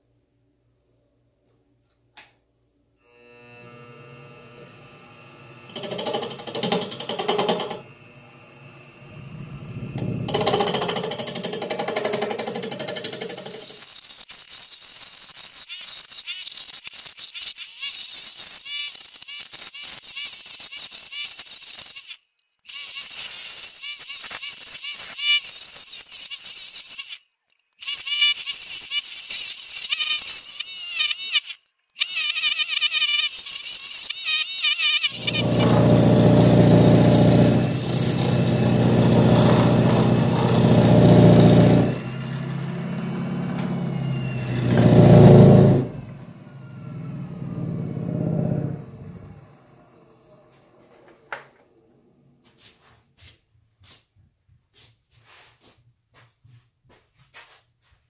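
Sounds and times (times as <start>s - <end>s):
wood lathe spinning: 3.0s - 27.2s, 27.8s - 51.9s
turning tool chattering on wood: 10.3s - 42.7s.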